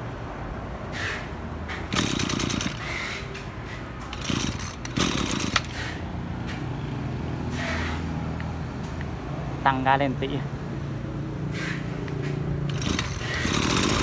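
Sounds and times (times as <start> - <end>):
brush cutter engine running: 1.9 - 3.0, 4.1 - 5.9, 12.7 - 14.0.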